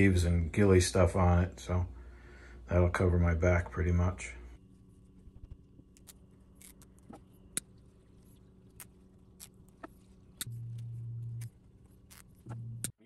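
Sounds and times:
louder low hum: 0.0s - 13.0s
low steady hum: 0.0s - 13.0s.

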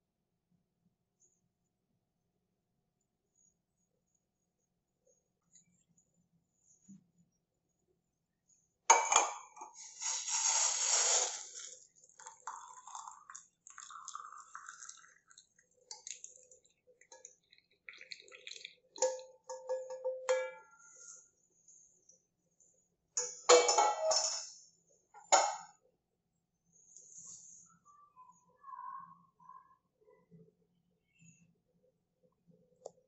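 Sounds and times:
tea splashing into mug: 11.1s - 19.7s
soft trickle: 11.4s - 19.7s.

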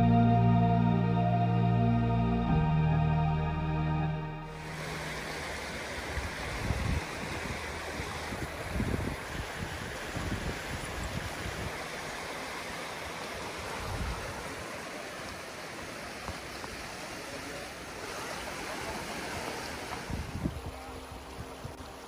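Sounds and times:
water rushing over rocks: 4.5s - 22.0s.

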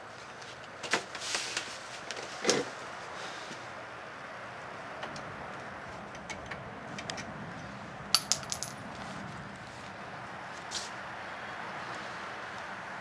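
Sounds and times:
sharp metallic clinks: 8.2s - 8.9s.

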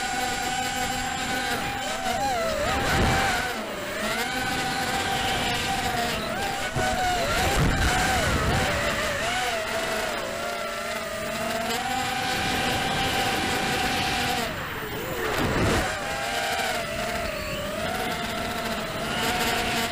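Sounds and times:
wind noise: 0.0s - 10.2s, 11.6s - 19.9s
drone motors whining: 0.0s - 19.9s.

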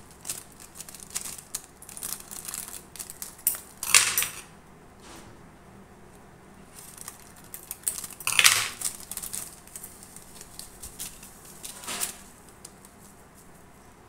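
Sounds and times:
foil sachet crinkling: 0.0s - 4.0s, 6.7s - 13.7s.

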